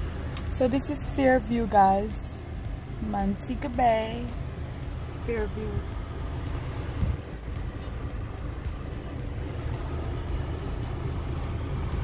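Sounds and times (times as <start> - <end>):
car interior rumble: 0.0 - 12.0.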